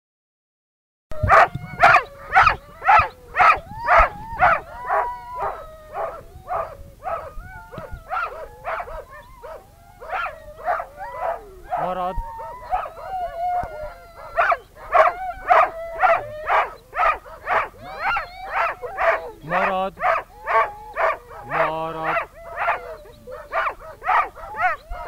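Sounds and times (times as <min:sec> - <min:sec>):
dogs barking: 0:01.2 - 0:25.0.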